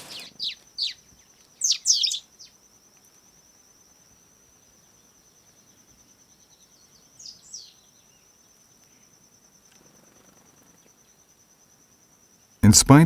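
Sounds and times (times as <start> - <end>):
descending bird chirps: 0.0 - 2.6
pulsing insect trill: 0.0 - 13.0.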